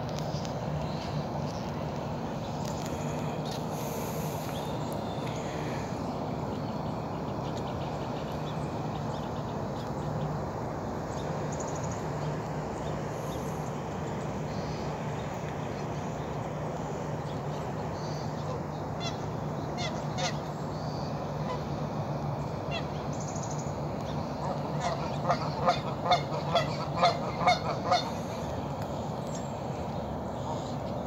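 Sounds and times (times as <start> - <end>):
outdoor background noise: 0.0 - 31.0
geese honking: 18.2 - 20.5, 21.1 - 21.8, 22.6 - 23.1, 23.8 - 28.8.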